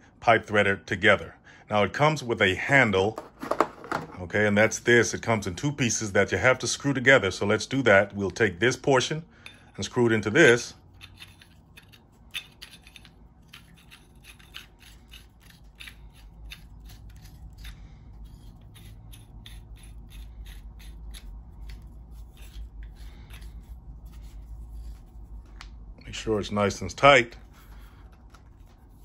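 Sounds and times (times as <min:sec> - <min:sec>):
metal threads scraping clicks: 0:10.9 - 0:25.7.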